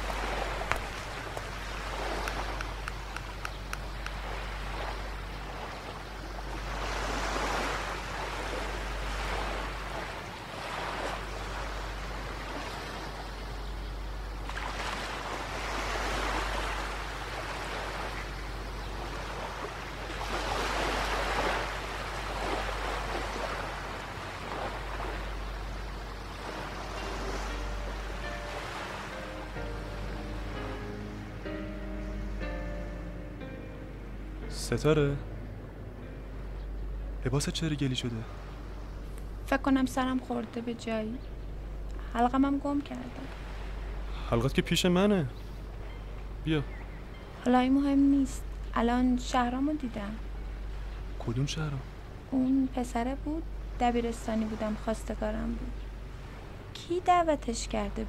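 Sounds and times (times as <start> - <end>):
surf washing onto beach: 0.0 - 5.0
low rumble: 29.5 - 44.2.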